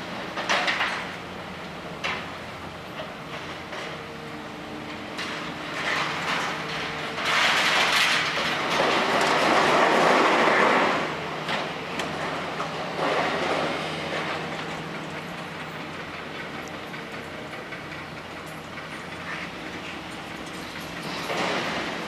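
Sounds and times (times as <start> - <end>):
excavator engine humming: 0.0 - 9.8, 11.0 - 22.0
steel scrap scraping and clattering: 5.2 - 11.1, 18.7 - 22.0.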